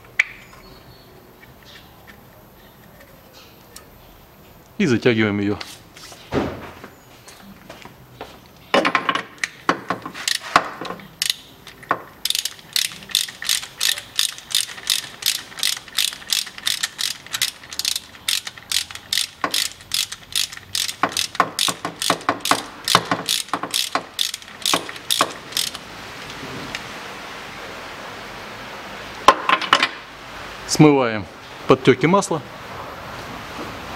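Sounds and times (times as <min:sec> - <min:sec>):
ratchet wrench clicking: 0:10.2 - 0:25.8.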